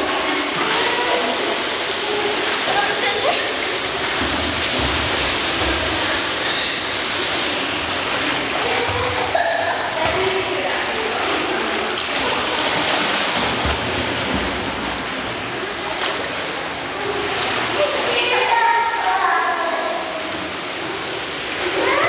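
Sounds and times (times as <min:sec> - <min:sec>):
pool water splashing: 0:00.0 - 0:22.0
rush of moving water: 0:00.0 - 0:22.0
faint children's voices: 0:08.4 - 0:13.5, 0:15.5 - 0:22.0.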